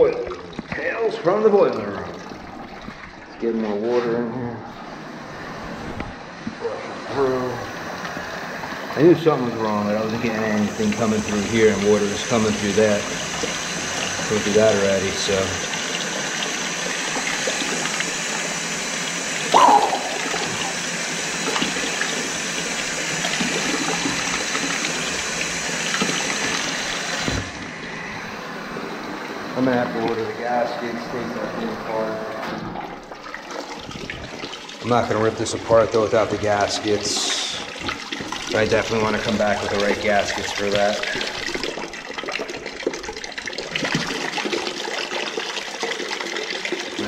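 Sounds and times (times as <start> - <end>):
water splashing into a bucket: 7.2 - 28.0, 32.4 - 47.0.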